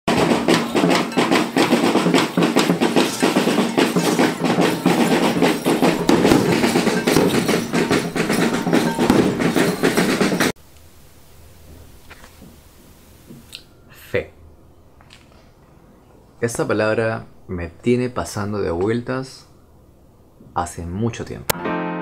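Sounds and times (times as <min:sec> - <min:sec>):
busy music with clattering percussion: 0:00.1 - 0:10.6.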